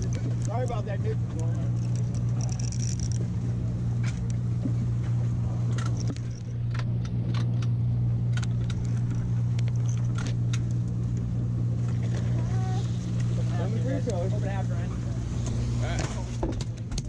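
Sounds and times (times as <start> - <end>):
clicks and knocks of gear: 0.0 - 3.4, 4.0 - 11.3, 15.9 - 17.0
boat engine droning: 0.0 - 17.0.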